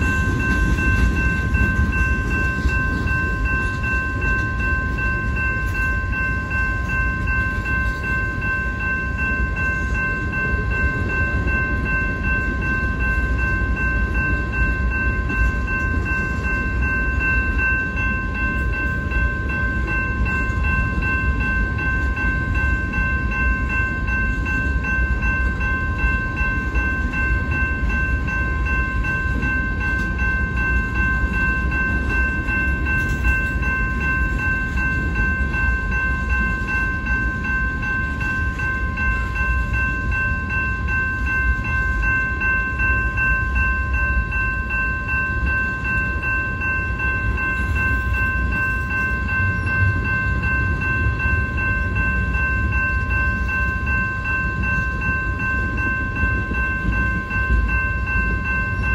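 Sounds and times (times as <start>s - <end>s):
high ringing tones: 0.0s - 58.9s
wheels rumbling on rail: 0.0s - 58.9s.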